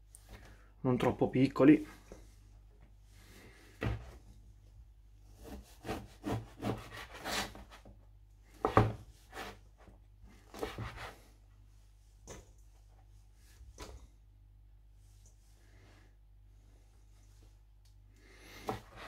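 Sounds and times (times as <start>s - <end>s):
knife sawing bread: 5.3s - 7.8s, 9.3s - 9.6s, 10.5s - 11.2s.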